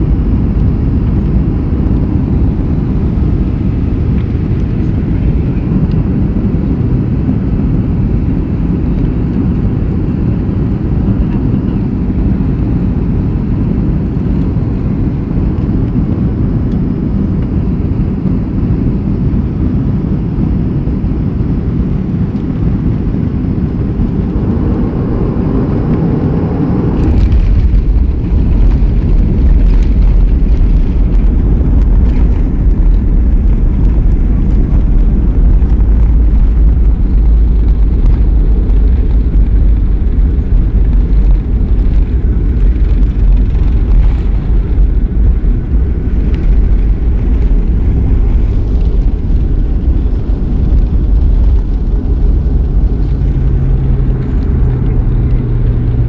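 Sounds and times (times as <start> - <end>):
low rumble of moving vehicle: 0.0 - 56.0.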